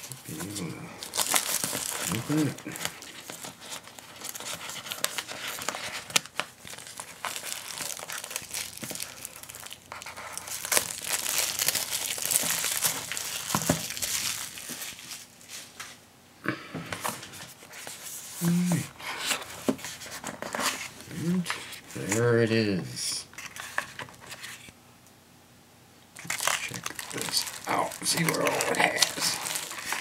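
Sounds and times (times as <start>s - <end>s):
cardboard tearing: 0.0s - 15.3s, 26.2s - 30.0s
cardboard rustling and scraping: 16.9s - 22.2s, 23.4s - 24.7s, 26.3s - 30.0s.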